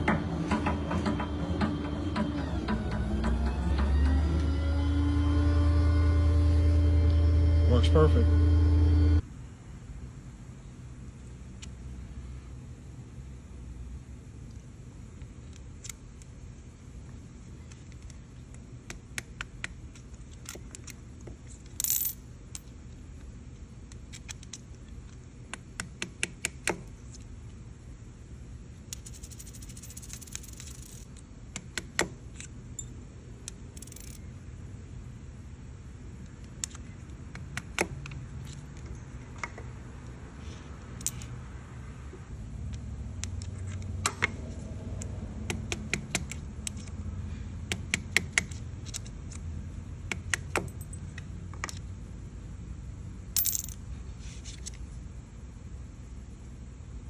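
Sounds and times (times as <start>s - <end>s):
low machine hum: 0.0s - 18.8s
metal parts and tools clinking: 28.9s - 31.2s, 33.7s - 34.3s, 41.0s - 41.4s, 53.4s - 53.9s.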